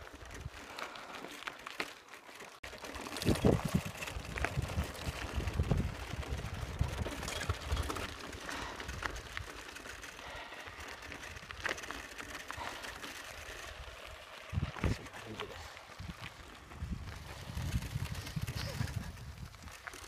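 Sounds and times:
tyres crunching on gravel: 0.0 - 20.0
bike rattling clicks: 0.1 - 15.1
wind buffeting microphone: 3.2 - 9.4, 13.8 - 15.0, 15.9 - 19.9.

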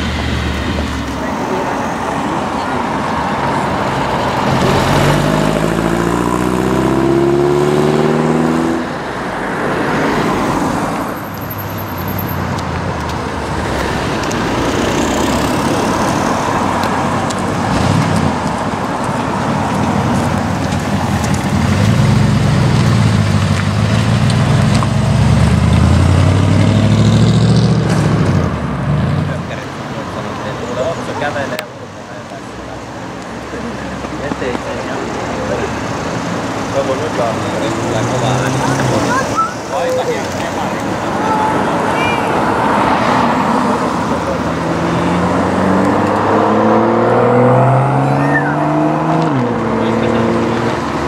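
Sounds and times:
car engine accelerating: 0.0 - 9.0, 13.5 - 31.6, 42.4 - 51.0
car driving slowly past: 9.8 - 41.8.

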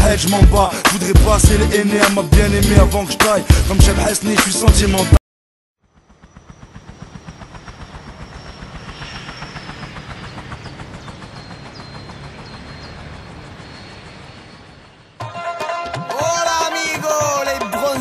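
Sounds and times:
thin high whine: 6.3 - 15.1.

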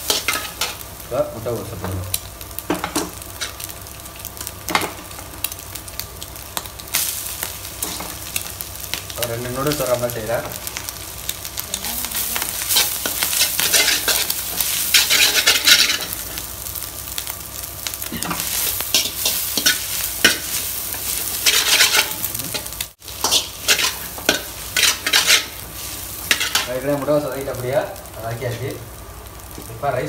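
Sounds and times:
food sizzling in a wok: 0.0 - 30.0
metal ladle scraping a pan: 21.4 - 22.2, 23.2 - 25.6.

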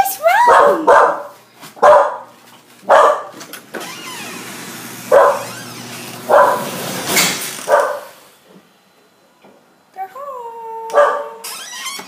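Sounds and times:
dog barking: 0.4 - 3.4, 5.1 - 5.6, 6.3 - 6.8, 7.7 - 8.2, 10.9 - 11.4.

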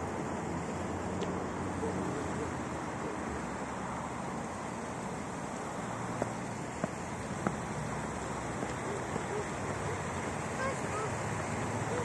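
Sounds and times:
distant traffic: 0.0 - 12.0
wind: 0.0 - 12.0
footsteps on stone paving: 6.2 - 9.8.

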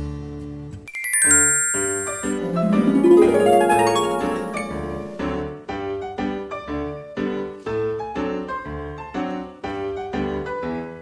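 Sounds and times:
light keyboard tune: 0.9 - 6.2.

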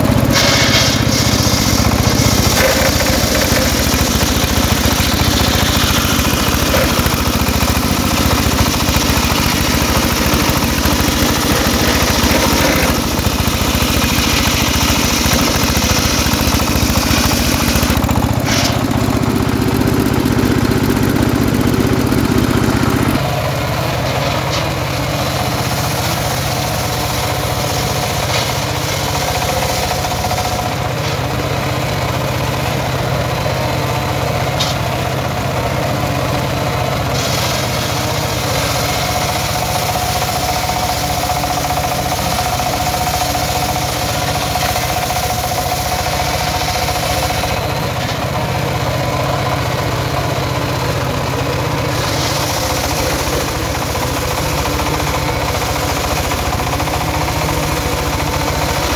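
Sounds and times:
circular saw blade whining: 0.0 - 33.0
diesel engine running: 0.0 - 58.9.

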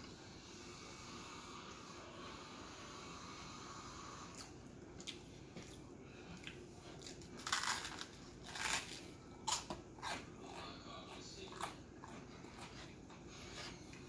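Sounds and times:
chewing a toasted sandwich: 4.3 - 14.0
loud crunches: 7.0 - 9.6.

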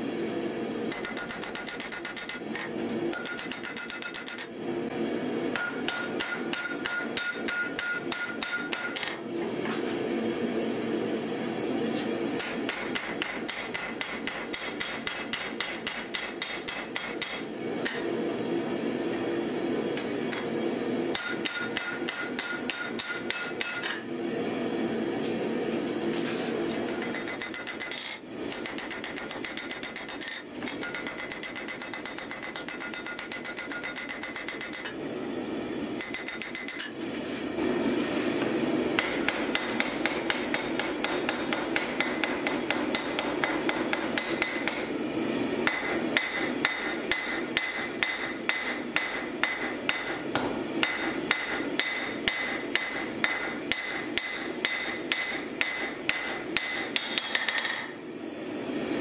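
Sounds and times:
hammer ringing on anvil: 0.9 - 2.4, 3.1 - 4.4, 5.6 - 9.0, 12.7 - 17.4, 21.1 - 23.9, 26.9 - 34.8, 36.0 - 36.9, 45.7 - 50.2, 50.8 - 57.9.

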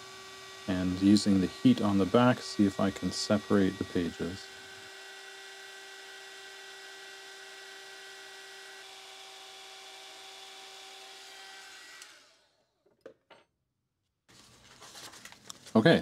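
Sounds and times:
heat gun blowing: 0.0 - 12.4.

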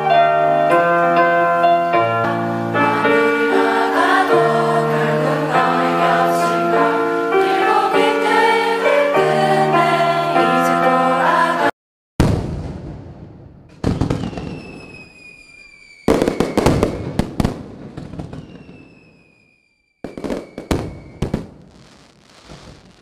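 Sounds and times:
descending firework whistle: 12.2 - 23.0
fireworks bangs: 12.2 - 23.0
fireworks crackling: 12.2 - 23.0.

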